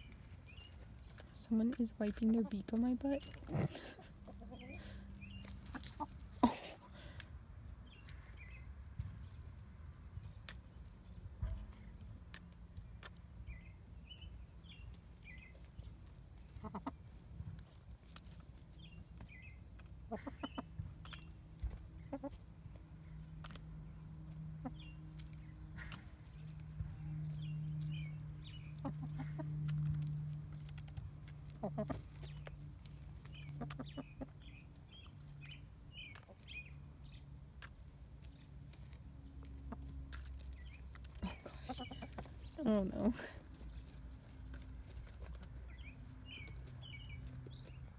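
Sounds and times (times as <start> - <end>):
hen clucking: 0.0 - 7.2, 16.4 - 17.7, 19.8 - 22.6, 24.3 - 36.7, 39.4 - 47.8
beaks pecking on wood: 0.0 - 9.4, 10.0 - 47.9.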